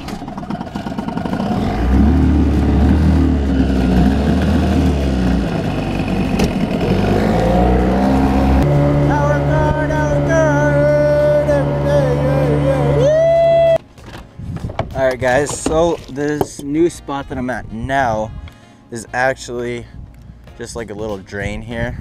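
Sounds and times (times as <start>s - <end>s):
outboard motor revving: 0.0s - 13.4s
background music: 6.7s - 22.0s.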